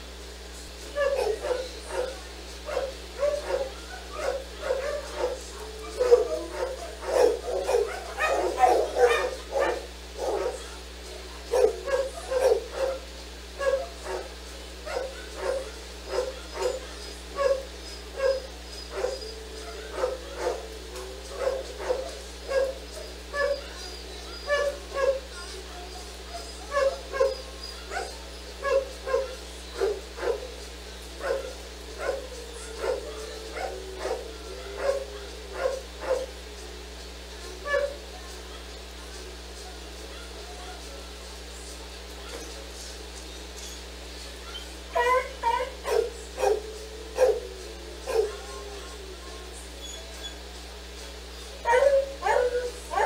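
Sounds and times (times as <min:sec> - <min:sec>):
dog barking: 0:01.0 - 0:10.8, 0:11.5 - 0:30.6, 0:31.2 - 0:36.4, 0:37.6 - 0:38.1, 0:44.5 - 0:48.8, 0:51.6 - 0:53.0.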